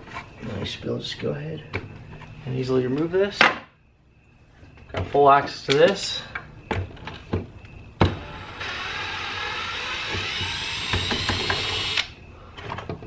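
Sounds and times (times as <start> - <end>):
drill motor whining: 8.0 - 12.2.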